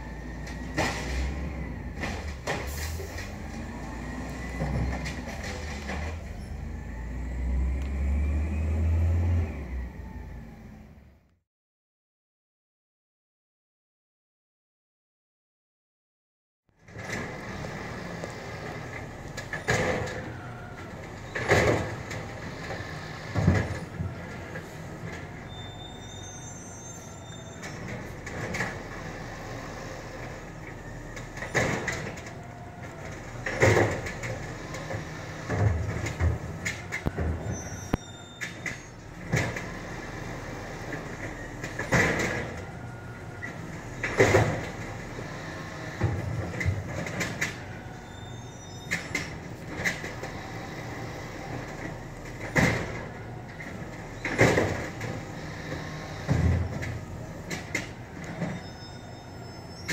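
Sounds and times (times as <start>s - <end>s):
garbage truck running: 0.0s - 11.3s, 16.8s - 59.9s
brief high squeals: 25.4s - 28.0s, 37.3s - 39.1s, 47.8s - 49.3s, 58.4s - 59.9s.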